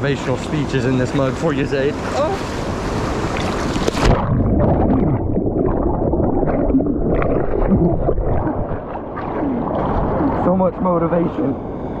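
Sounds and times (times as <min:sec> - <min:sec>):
underwater gurgling churn: 0:01.1 - 0:12.0
water splashing: 0:01.8 - 0:11.0.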